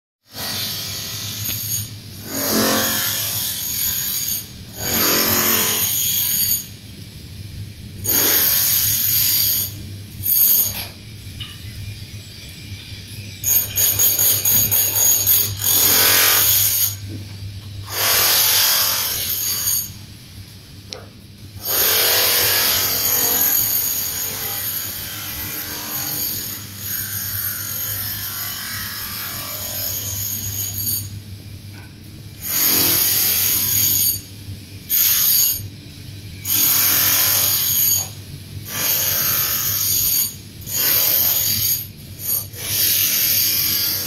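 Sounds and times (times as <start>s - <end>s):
power tool running: 17.8s - 20.0s, 21.6s - 30.8s.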